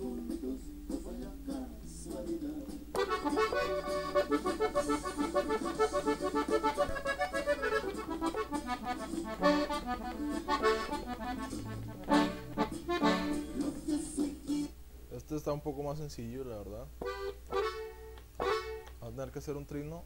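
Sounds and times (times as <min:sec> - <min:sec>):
button accordion melody: 0:02.9 - 0:14.3, 0:17.0 - 0:18.9.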